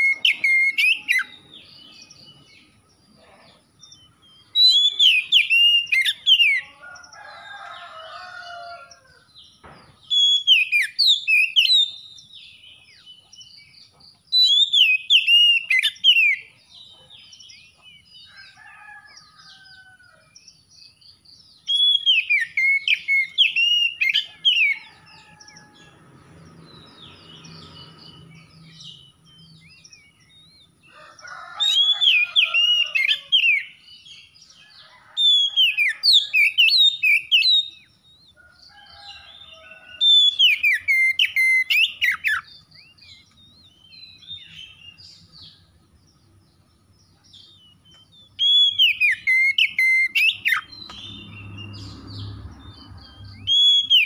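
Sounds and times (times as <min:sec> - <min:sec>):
bird singing whistled phrases: 0:04.6 - 0:06.5, 0:10.1 - 0:12.0, 0:48.4 - 0:51.2, 0:53.5 - 0:54.0.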